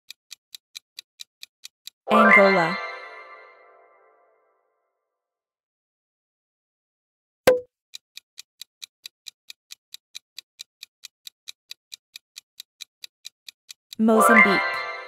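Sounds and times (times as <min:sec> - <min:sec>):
high clock ticks: 0:00.0 - 0:02.8, 0:07.5 - 0:15.0.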